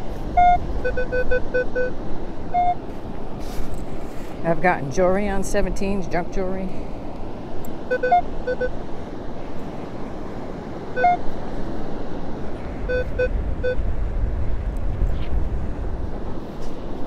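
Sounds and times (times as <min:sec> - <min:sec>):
steady rush of noise: 0:00.0 - 0:17.0
metal detector beeps: 0:00.3 - 0:02.8, 0:07.9 - 0:08.8, 0:11.0 - 0:11.2, 0:12.9 - 0:13.8.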